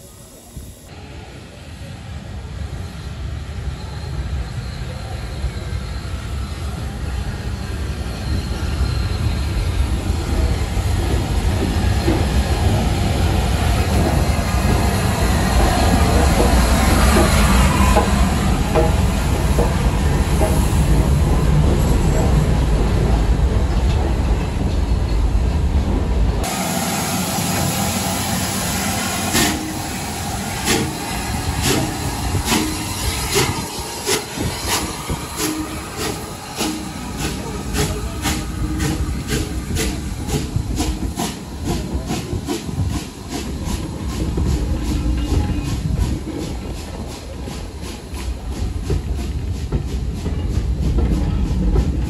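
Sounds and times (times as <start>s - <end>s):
steam hiss: 0.0s - 1.8s, 26.4s - 52.0s
train coaches rolling: 0.0s - 52.0s
steam locomotive chuffing beats: 9.8s - 23.1s, 26.4s - 52.0s.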